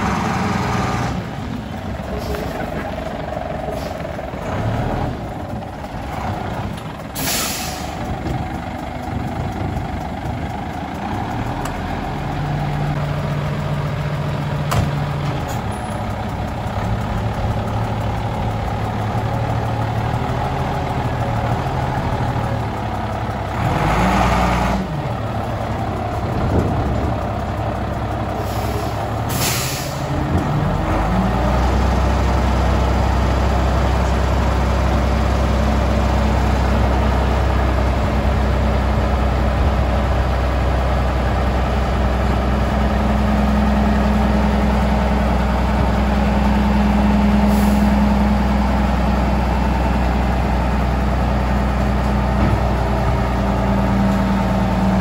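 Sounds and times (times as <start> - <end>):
diesel truck engine running: 0.0 - 55.0
air brake hisses: 7.2 - 8.0, 28.4 - 30.1.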